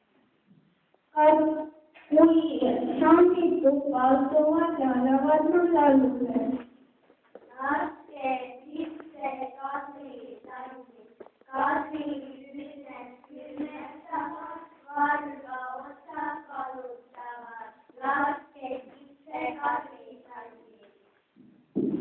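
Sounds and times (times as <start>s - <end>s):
children singing together: 11.5s - 16.9s.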